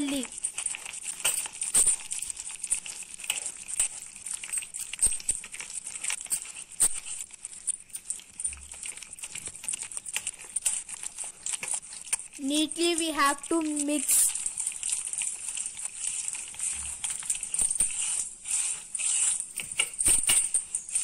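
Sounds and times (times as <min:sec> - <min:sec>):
hand squishing wet batter: 0:00.0 - 0:19.6.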